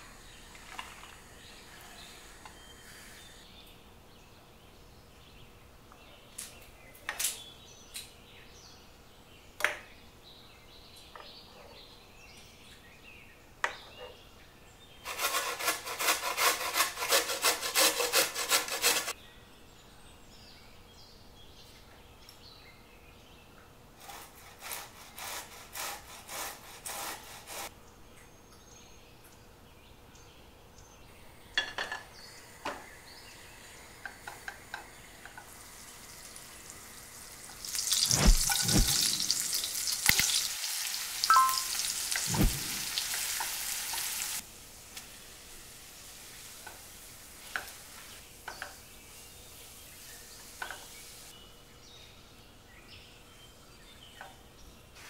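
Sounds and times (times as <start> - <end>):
carrot grating on grater: 15.1 - 19.1.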